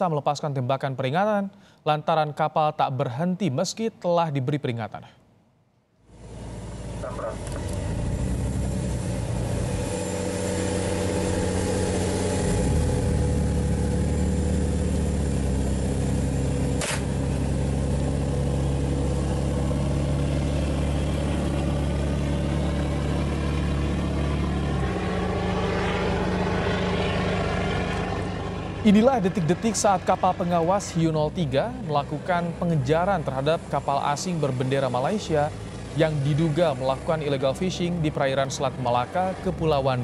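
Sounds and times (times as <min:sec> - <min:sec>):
boat engines droning: 0:06.1 - 0:40.0
sharp click: 0:16.8 - 0:17.1.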